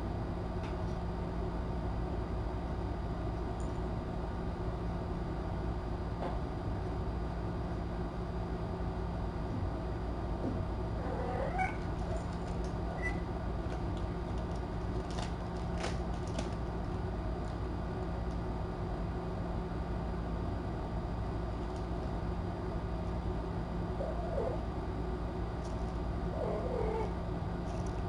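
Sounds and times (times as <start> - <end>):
steady hiss and hum: 0.0 - 28.0
cat mewing: 11.0 - 11.8, 26.4 - 27.2.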